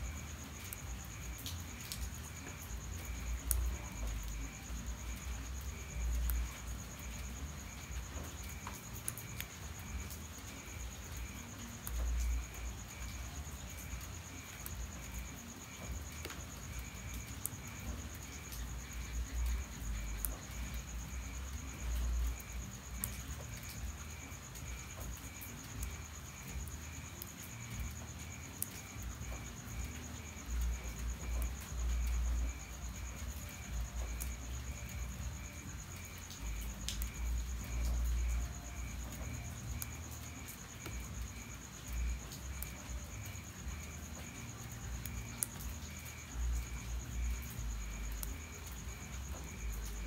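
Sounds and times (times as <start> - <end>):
crickets chirping: 0.0 - 50.0
light ticks: 0.6 - 10.6, 11.7 - 20.8, 35.9 - 38.4.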